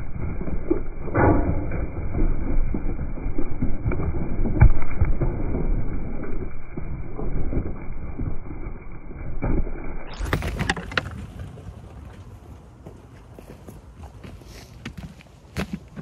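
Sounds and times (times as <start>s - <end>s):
sheep hooves stamping on soil: 10.1s - 16.0s.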